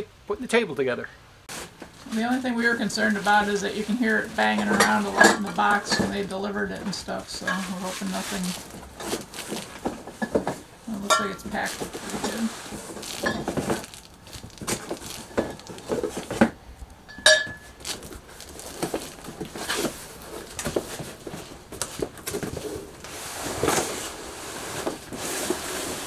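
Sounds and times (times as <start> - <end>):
cardboard scraping and rustling: 1.5 - 16.6, 17.6 - 26.0
short ringing clink: 17.1 - 17.7.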